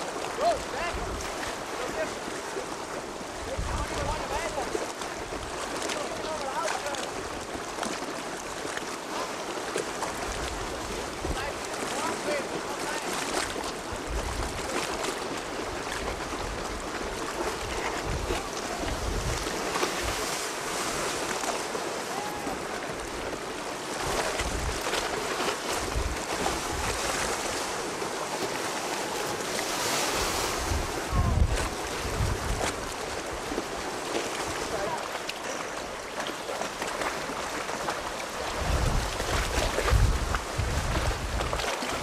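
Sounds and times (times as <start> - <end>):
sea waves: 0.0 - 42.0
wind gusting on microphone: 3.4 - 4.5, 17.7 - 20.4, 24.0 - 25.0, 29.2 - 33.4, 38.5 - 42.0.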